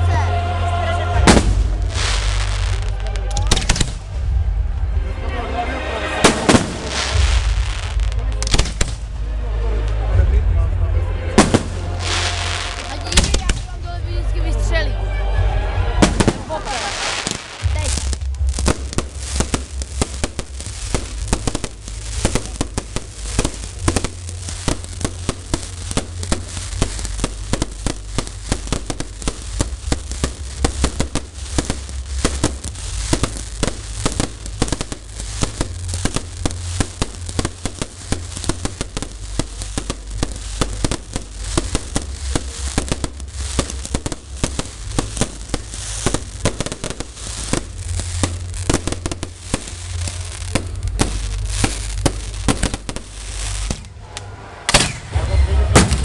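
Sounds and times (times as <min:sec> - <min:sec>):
steady low rumble: 0:00.0 - 0:56.0
fireworks bursting and crackling: 0:01.1 - 0:10.4, 0:11.1 - 0:56.0.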